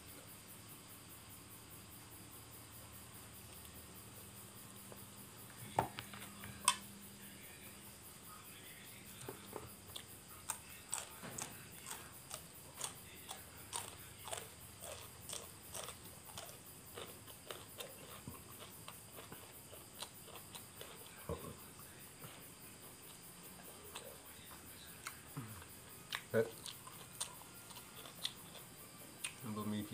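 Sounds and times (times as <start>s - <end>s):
person chewing food: 9.4s - 21.4s, 22.2s - 24.4s, 25.0s - 29.4s.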